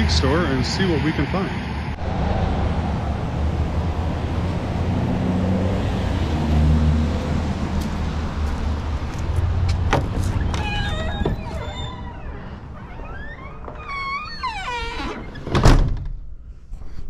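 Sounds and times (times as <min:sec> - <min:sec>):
street traffic rumble: 0:00.0 - 0:15.6
door being pulled open: 0:09.3 - 0:16.2.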